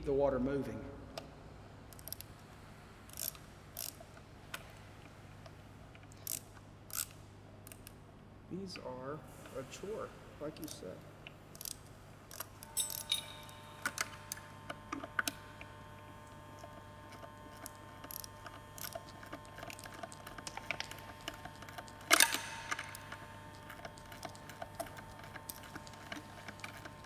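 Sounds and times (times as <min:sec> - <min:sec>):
hand ratchet clicking: 0:01.9 - 0:02.3, 0:03.1 - 0:04.0, 0:06.2 - 0:08.0, 0:11.5 - 0:14.1, 0:17.2 - 0:27.0
wrenches clinking on metal: 0:11.6 - 0:14.1
ringing metal clank: 0:12.7 - 0:13.7.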